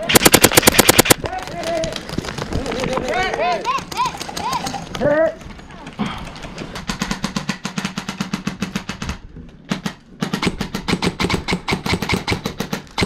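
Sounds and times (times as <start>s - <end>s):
airsoft gun firing full auto: 0.0s - 1.2s.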